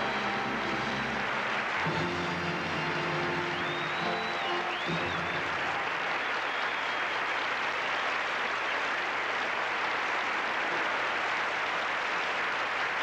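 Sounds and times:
backing music: 0:00.0 - 0:06.1
audience applauding: 0:00.0 - 0:13.0.

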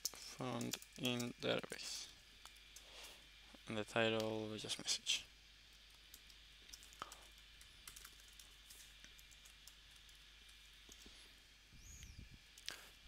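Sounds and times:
computer keyboard typing: 0:06.1 - 0:10.2.

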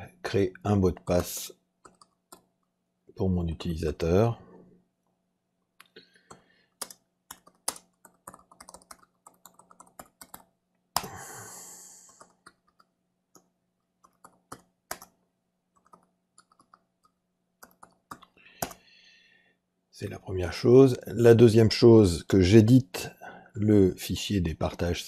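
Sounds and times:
computer keyboard typing: 0:01.1 - 0:02.7, 0:06.3 - 0:11.1, 0:12.1 - 0:18.8.

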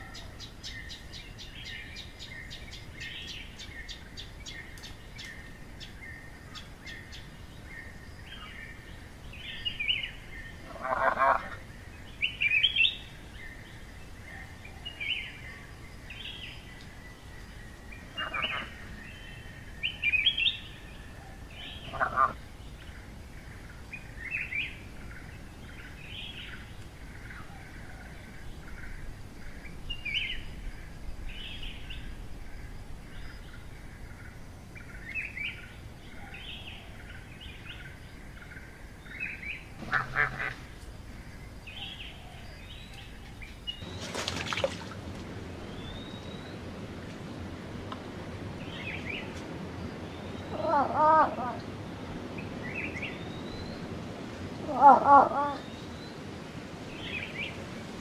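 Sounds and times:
small birds chirping: 0:00.0 - 0:20.8.

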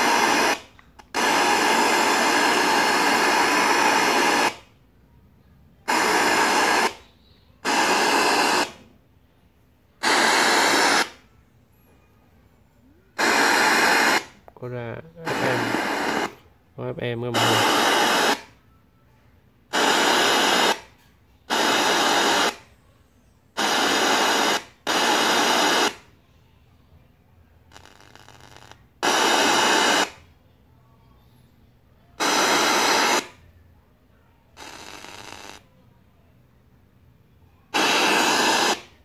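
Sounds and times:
radio static bursts: 0:00.0 - 0:04.6, 0:05.9 - 0:08.8, 0:10.0 - 0:11.2, 0:13.1 - 0:18.5, 0:19.7 - 0:20.9, 0:21.5 - 0:22.7, 0:23.6 - 0:26.0, 0:27.7 - 0:30.2, 0:32.2 - 0:33.4, 0:34.6 - 0:35.6, 0:37.7 - 0:39.0.

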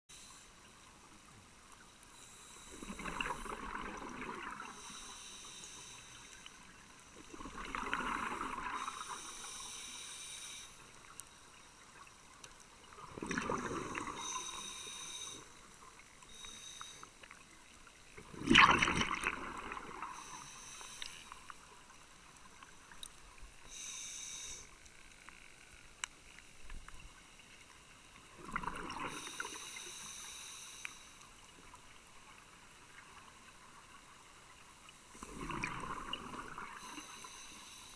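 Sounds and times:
regulator hiss on inhale: 0:00.1 - 0:00.9, 0:01.8 - 0:07.2, 0:08.0 - 0:12.1, 0:12.9 - 0:17.8, 0:19.8 - 0:22.6, 0:23.4 - 0:25.6, 0:29.0 - 0:32.0, 0:36.6 - 0:37.9
bubbling exhaled air underwater: 0:02.7 - 0:05.0, 0:07.2 - 0:09.4, 0:12.9 - 0:14.7, 0:18.2 - 0:21.1, 0:28.3 - 0:29.6, 0:35.2 - 0:37.3.

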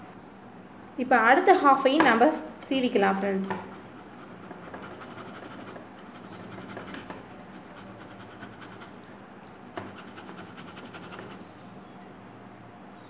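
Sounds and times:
tomato grating on metal grater: 0:03.5 - 0:09.0, 0:09.8 - 0:11.5.

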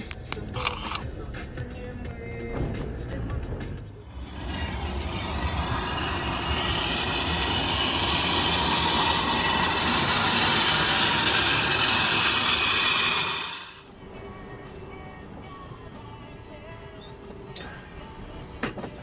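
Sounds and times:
wheel rim grinding on asphalt: 0:04.0 - 0:13.8.

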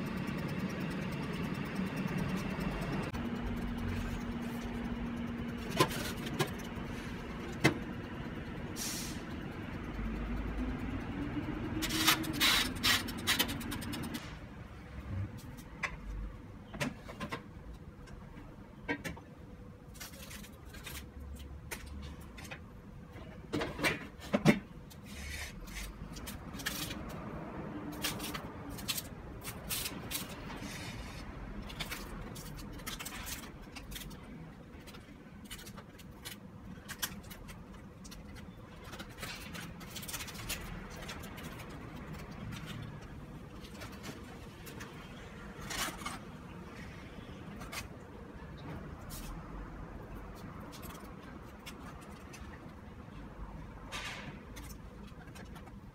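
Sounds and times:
aluminium foil crinkling: 0:19.9 - 0:22.0, 0:25.3 - 0:27.2, 0:27.9 - 0:44.9, 0:50.1 - 0:52.7.

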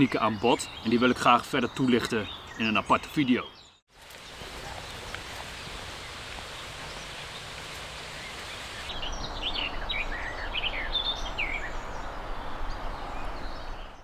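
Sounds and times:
outdoor background hiss: 0:00.0 - 0:14.0
songbirds chirping and whistling: 0:00.0 - 0:14.0.

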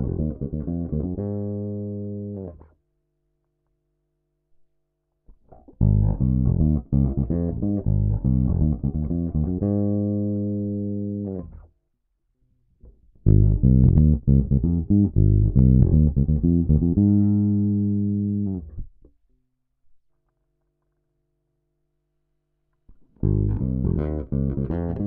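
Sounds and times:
electric bass plucked notes: 0:00.0 - 0:02.7, 0:05.5 - 0:11.7, 0:13.1 - 0:19.0, 0:23.1 - 0:25.0.

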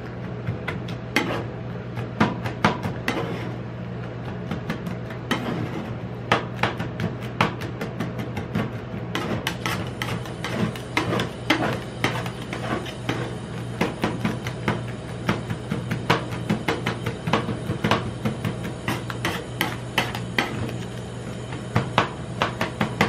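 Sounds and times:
steady low hum: 0:00.0 - 0:23.0
metal spatulas tapping and scraping: 0:00.7 - 0:01.5, 0:02.4 - 0:03.6, 0:04.7 - 0:14.6.

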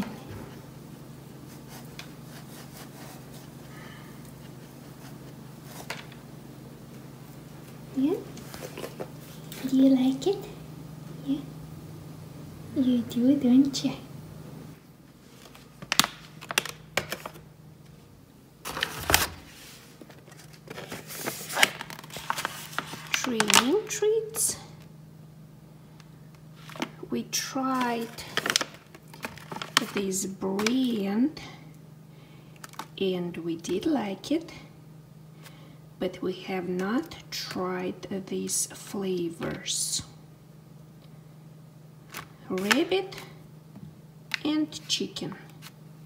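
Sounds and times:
steady low hum: 0:00.0 - 0:46.0
plastic pouches crinkling: 0:15.3 - 0:17.5, 0:20.0 - 0:23.9, 0:27.7 - 0:31.0, 0:32.6 - 0:33.0
dog rustling in packages: 0:27.8 - 0:31.0.

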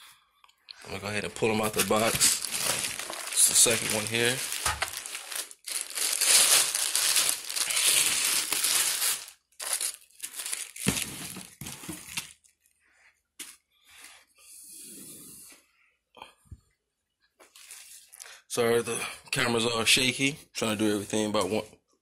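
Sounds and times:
packaging crinkling and tearing: 0:01.5 - 0:12.5.

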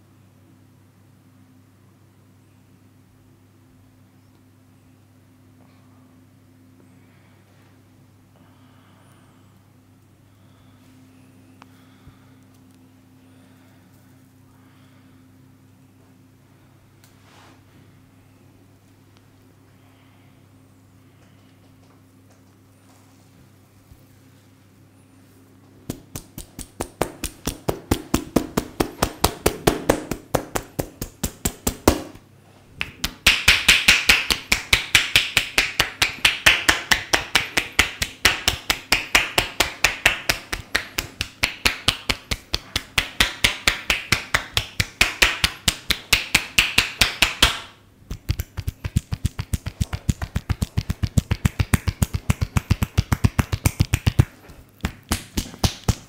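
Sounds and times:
hands slapping in tapping massage: 0:25.8 - 0:32.2, 0:32.8 - 0:56.0.

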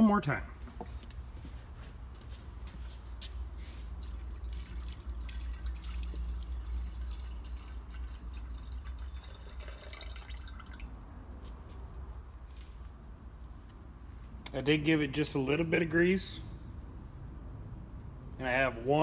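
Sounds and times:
water pouring into metal barrel: 0:03.9 - 0:11.0.

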